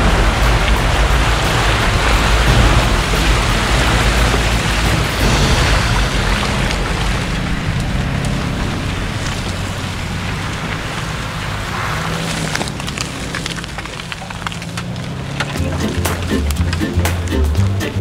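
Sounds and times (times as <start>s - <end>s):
off-road vehicle engine running: 0.0s - 18.0s
steady rushing noise: 0.0s - 18.0s
sharp ticks: 12.6s - 18.0s.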